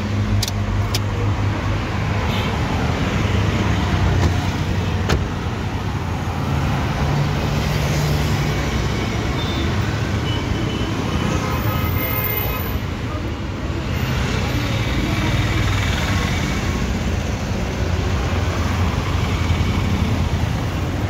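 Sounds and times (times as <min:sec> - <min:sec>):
street traffic noise: 0:00.0 - 0:21.0
sharp clicks: 0:00.3 - 0:01.1.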